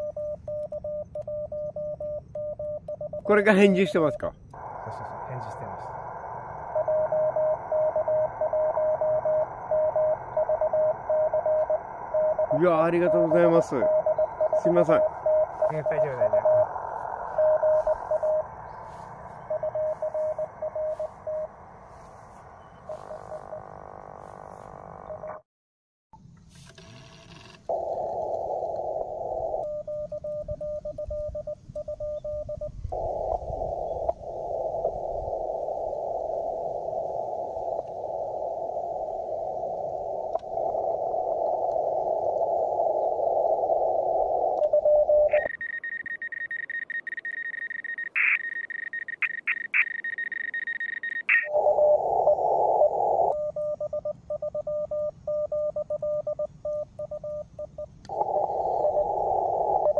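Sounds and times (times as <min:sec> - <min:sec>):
high steady tone: 0:00.0 - 0:25.4, 0:27.7 - 0:59.9
morse code beeping tone: 0:00.0 - 0:25.4, 0:27.7 - 0:59.9
receiver hiss: 0:00.0 - 0:25.4, 0:26.2 - 0:59.9
short blips: 0:44.5 - 0:51.8.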